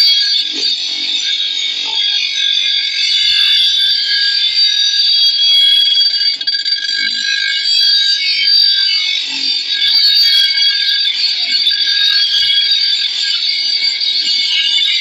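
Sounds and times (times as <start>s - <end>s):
grinder grinding steel blade: 0.0s - 15.0s.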